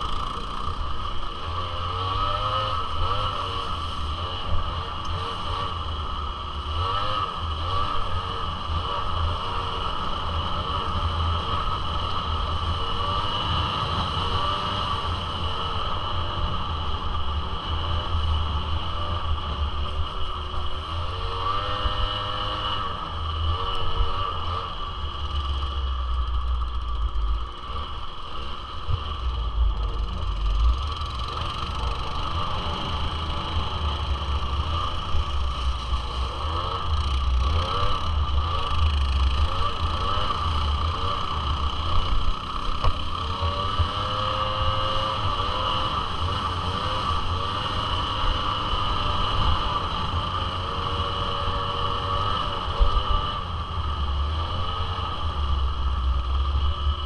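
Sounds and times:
two-stroke engine revving: 0:00.0 - 0:16.6, 0:17.5 - 0:57.0
heavy low rumble: 0:24.9 - 0:44.0.

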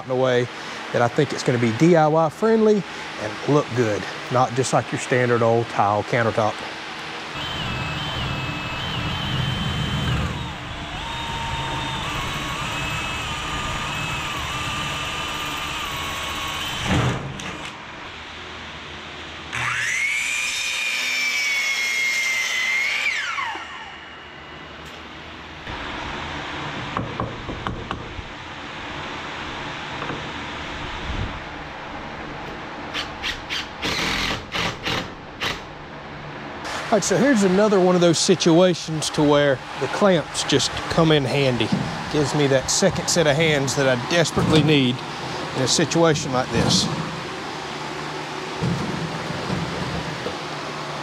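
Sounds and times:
cordless drill whining: 0:07.3 - 0:17.8.

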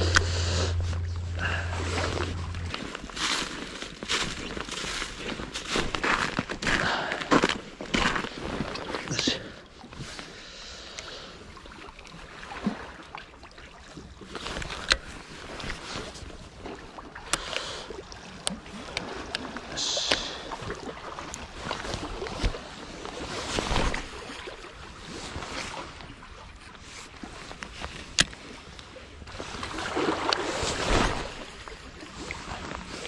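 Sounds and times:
waves lapping at shore: 0:00.0 - 0:33.0
wind: 0:00.0 - 0:33.0.

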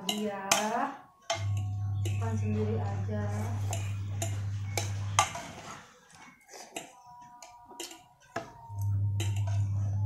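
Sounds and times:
metal spoon clinking on plate: 0:00.0 - 0:02.2, 0:03.6 - 0:05.8, 0:06.6 - 0:10.0
steady low hum: 0:01.3 - 0:05.4, 0:08.7 - 0:10.0.

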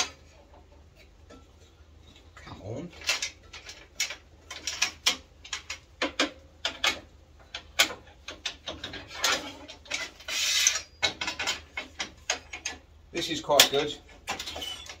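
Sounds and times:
sharp clicks and knocks of plastic parts: 0:02.1 - 0:10.3, 0:11.0 - 0:15.0
short scrape: 0:10.1 - 0:10.9.

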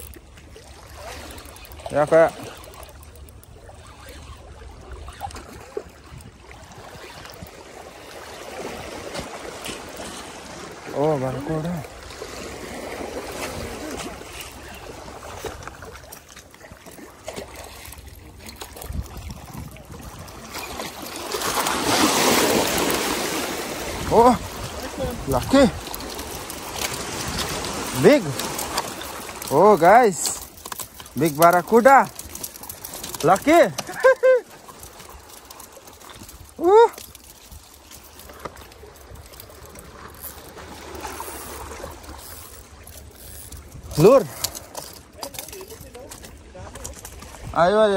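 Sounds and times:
water lapping among rocks: 0:00.0 - 0:47.9
wind on microphone: 0:18.2 - 0:21.0, 0:21.7 - 0:28.0
handling rustling and clicks: 0:25.7 - 0:41.5, 0:44.3 - 0:47.4.

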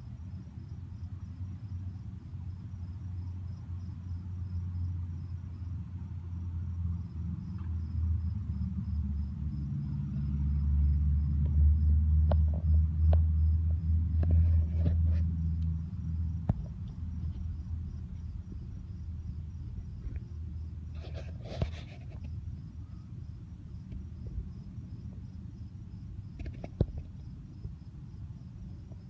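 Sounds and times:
crickets chirping: 0:00.0 - 0:29.0
low rumble: 0:07.8 - 0:20.9.

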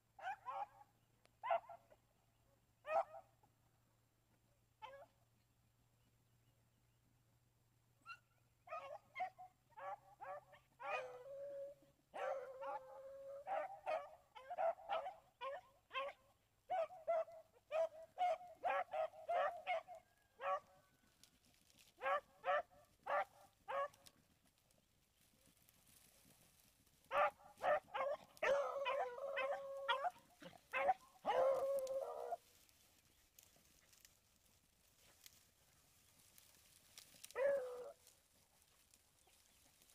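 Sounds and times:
dogs baying and barking: 0:08.1 - 0:20.8, 0:21.9 - 0:24.3, 0:27.0 - 0:32.6, 0:36.8 - 0:38.1.

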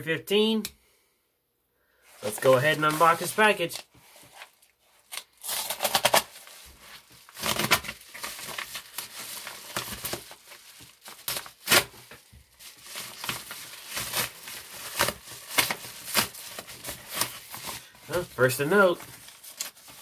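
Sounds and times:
paper crinkling and rustling: 0:02.1 - 0:20.0.

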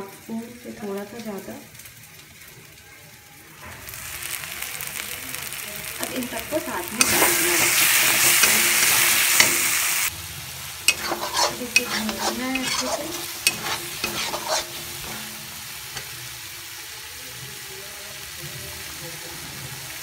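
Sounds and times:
masala sizzling in a pan: 0:00.0 - 0:20.0
steel spatula scraping a pan: 0:06.9 - 0:10.1, 0:10.9 - 0:16.3.

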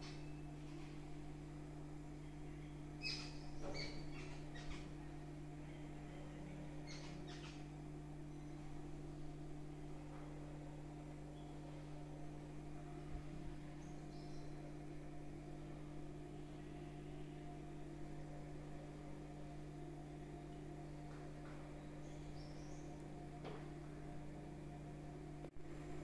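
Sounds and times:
low electrical hum: 0:00.0 - 0:26.0
faint bird chirps: 0:02.2 - 0:08.8, 0:13.6 - 0:14.7, 0:21.8 - 0:23.0.

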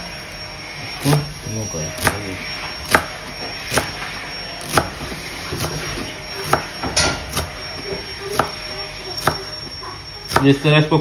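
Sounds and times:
knife chopping on cutting board: 0:02.0 - 0:02.2, 0:02.8 - 0:03.1, 0:03.7 - 0:04.0, 0:04.6 - 0:07.5, 0:08.3 - 0:08.5, 0:09.2 - 0:09.4.

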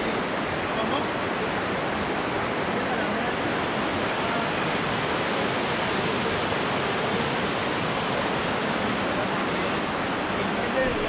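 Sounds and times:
river rapids rushing over rocks: 0:00.0 - 0:11.0.

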